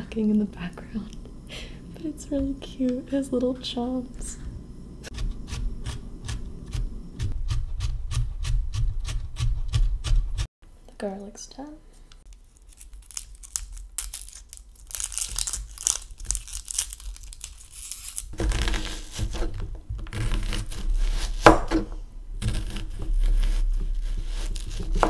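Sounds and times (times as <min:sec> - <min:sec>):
knife slicing onion: 0:05.0 - 0:10.5, 0:17.8 - 0:25.0
onion skin crackling and tearing: 0:12.2 - 0:21.6, 0:22.4 - 0:25.0.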